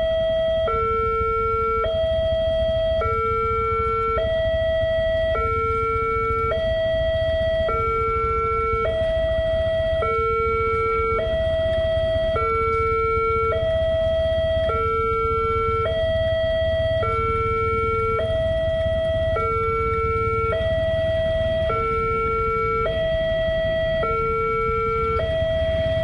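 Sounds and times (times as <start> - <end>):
steady low rumble: 0.0 - 26.0
two-tone level crossing alarm: 0.0 - 26.0.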